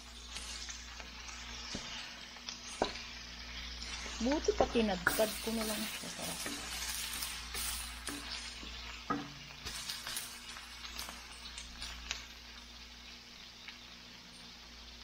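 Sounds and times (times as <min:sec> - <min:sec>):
spatula stirring: 0:00.0 - 0:12.3
shrimp sizzling in a wok: 0:00.0 - 0:15.0
spatula tapping pan: 0:02.8 - 0:03.0, 0:04.5 - 0:06.9, 0:07.5 - 0:09.8.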